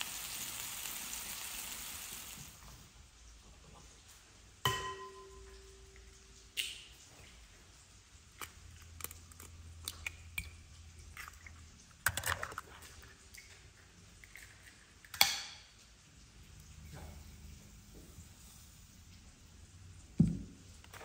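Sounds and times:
sharp clink with ringing: 4.7s - 5.9s.

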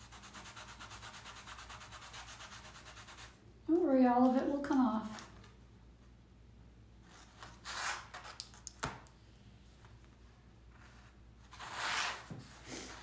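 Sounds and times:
pencil scratching on canvas: 0.0s - 3.4s.

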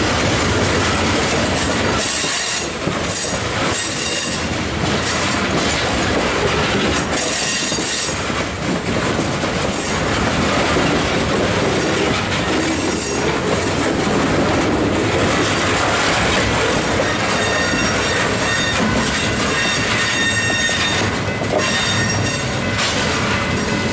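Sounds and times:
train cars rolling past: 0.0s - 23.9s
wheels clicking over rail joints: 0.0s - 23.9s
wheels squealing against rail: 2.0s - 5.2s, 7.1s - 8.3s, 12.6s - 13.3s, 16.6s - 23.9s.

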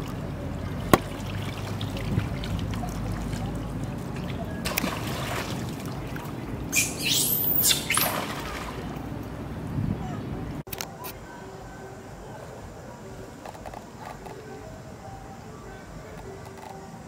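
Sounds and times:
water splashing: 0.0s - 9.6s
monkey shrill squeals: 6.7s - 8.3s.

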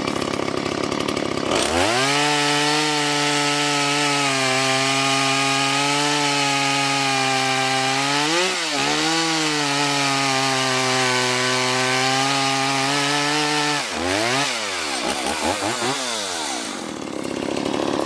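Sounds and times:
chainsaw cutting log: 0.0s - 18.0s.

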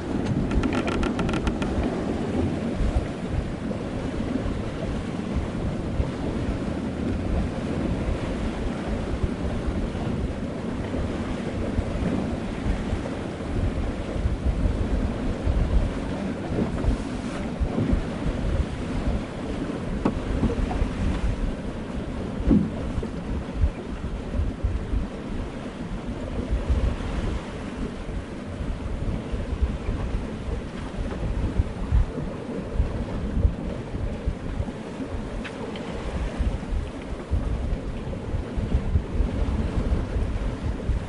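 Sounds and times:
sea water washing around boat: 0.0s - 41.0s
wind buffeting microphone: 0.0s - 41.0s.

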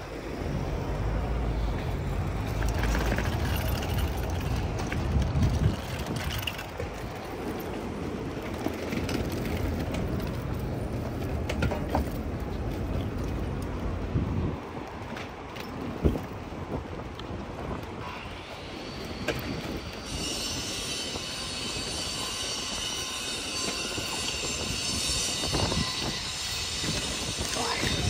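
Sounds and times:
passing car traffic rumble: 0.0s - 18.0s
wind on microphone: 1.8s - 7.4s, 8.3s - 15.0s, 15.7s - 28.0s.

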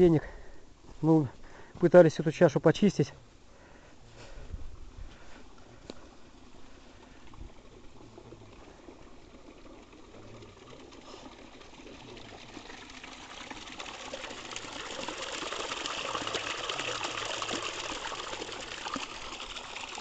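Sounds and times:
water gushing down a channel: 5.7s - 20.0s.

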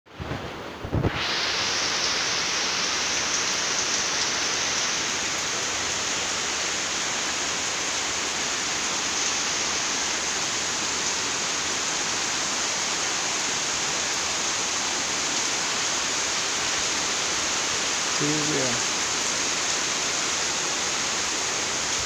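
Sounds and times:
heavy rain pouring: 0.1s - 22.0s.

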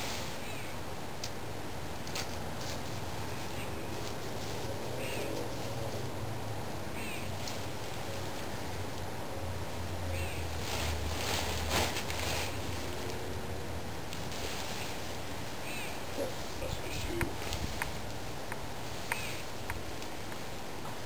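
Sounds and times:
nylon tent fabric rustling: 10.4s - 13.2s, 14.2s - 18.1s.

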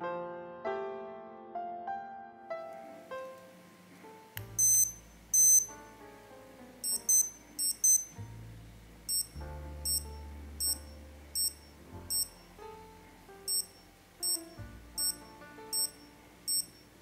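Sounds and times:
soft piano music: 0.0s - 17.0s
watch beeping: 4.5s - 5.8s, 6.8s - 8.2s, 9.1s - 12.6s, 13.5s - 16.9s.

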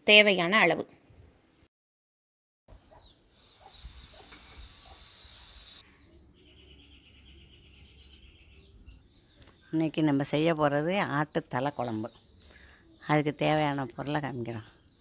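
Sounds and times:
birds chirping: 2.7s - 15.0s
steady high hiss: 3.3s - 5.9s.

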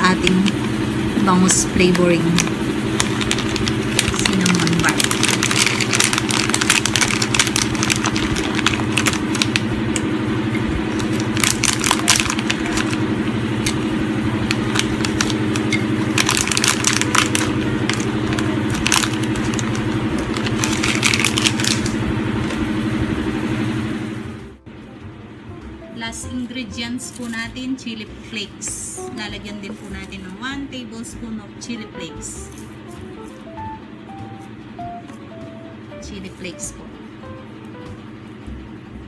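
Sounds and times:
low mechanical hum: 0.0s - 39.0s
dry bark crackling and crunching: 1.8s - 10.0s, 10.8s - 22.6s, 27.0s - 27.5s.

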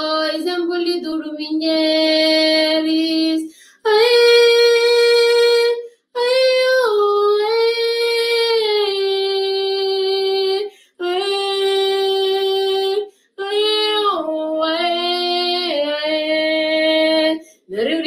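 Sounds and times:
woman singing unaccompanied: 0.0s - 18.0s
woman breathing: 3.5s - 3.8s, 10.7s - 11.0s, 13.1s - 13.4s.

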